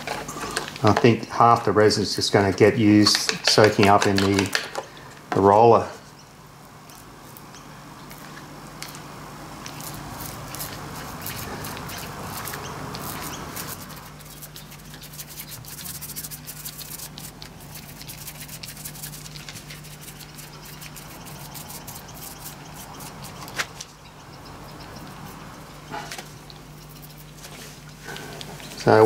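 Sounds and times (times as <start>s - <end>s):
steady low hum: 0.0s - 29.0s
paint roller rubbing with crackles: 9.6s - 24.0s, 25.1s - 29.0s.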